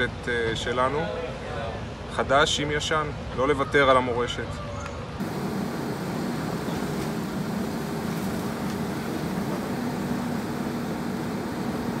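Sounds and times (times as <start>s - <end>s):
excavator diesel engine running: 5.2s - 12.0s.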